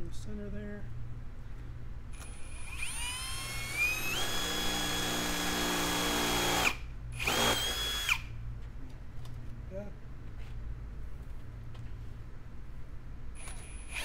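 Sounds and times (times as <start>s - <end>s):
cordless drill whining: 2.2s - 8.3s, 13.4s - 14.0s.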